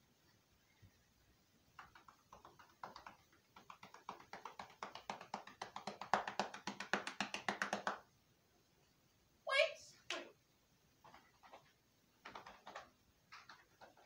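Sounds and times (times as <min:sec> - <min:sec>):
rapid sharp taps: 0:01.6 - 0:08.1, 0:11.0 - 0:14.0.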